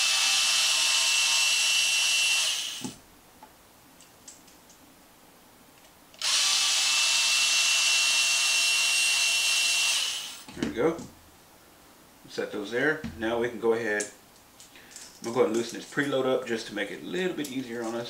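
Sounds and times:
electric screwdriver whining: 0.0s - 3.0s, 6.2s - 10.5s.

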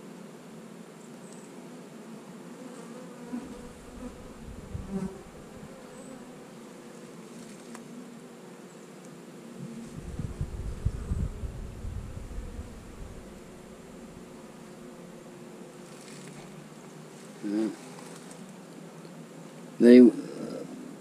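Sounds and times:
honey bees buzzing: 0.0s - 21.0s
low bumps: 9.6s - 14.2s.

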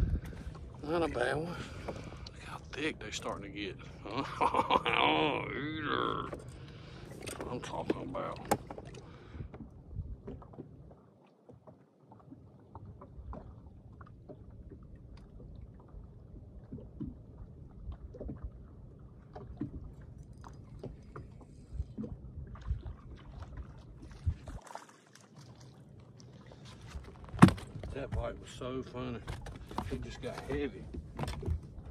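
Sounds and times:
waves lapping against boat hull: 0.0s - 31.9s.

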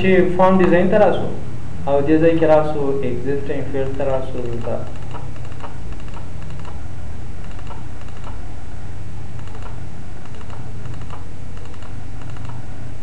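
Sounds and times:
steady low hum: 0.0s - 13.0s
keyboard keys clicking: 3.8s - 6.8s, 7.4s - 8.4s, 9.4s - 12.6s.

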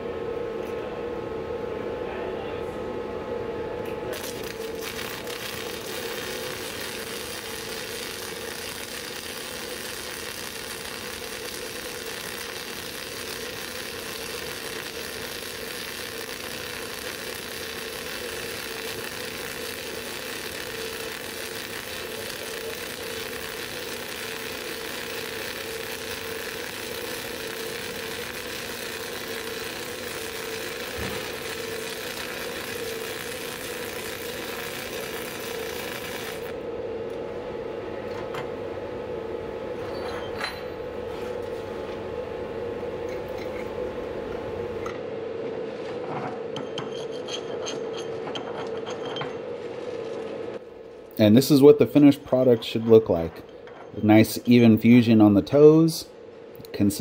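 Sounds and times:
welding arc hissing: 4.1s - 36.6s.

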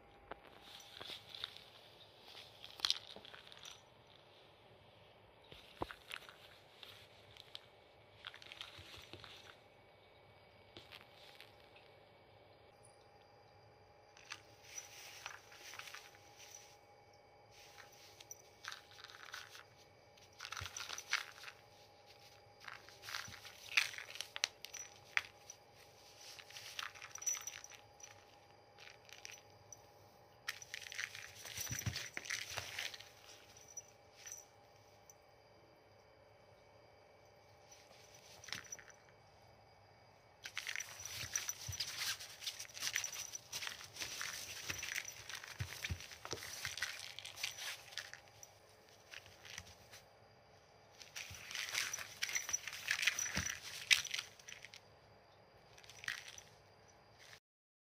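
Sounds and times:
cat claws scratching fabric: 40.5s - 50.0s.

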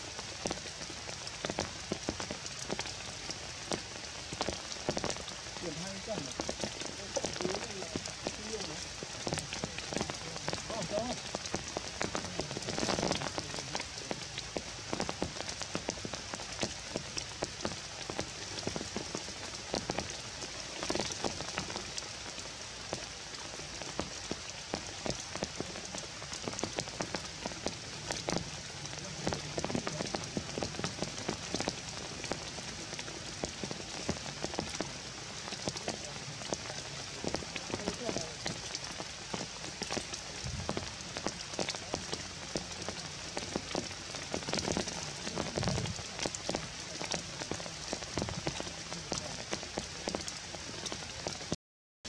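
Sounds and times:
rain on foliage: 0.0s - 51.6s.

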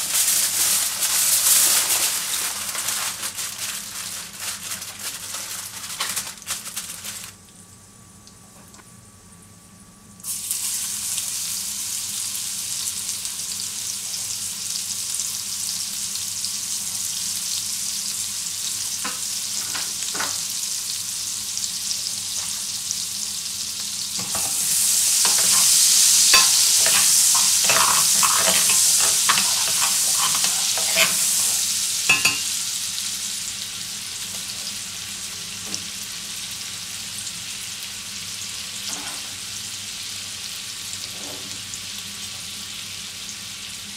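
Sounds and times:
meat drippings sizzling in a pan: 0.0s - 8.4s, 9.6s - 43.9s.

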